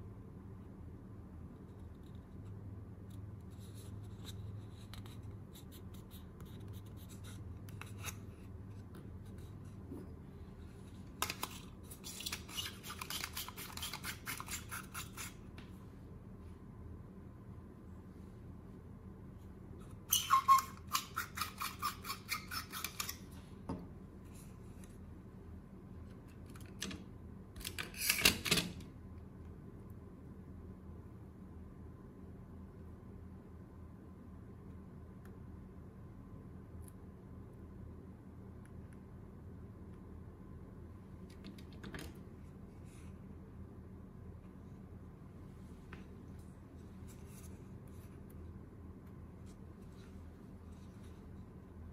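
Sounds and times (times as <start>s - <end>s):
low steady hum: 0.0s - 51.9s.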